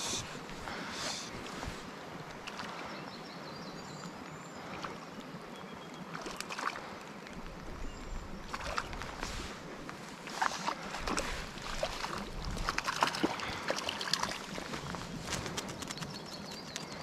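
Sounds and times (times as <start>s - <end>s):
mountain brook running: 10.4s - 17.0s.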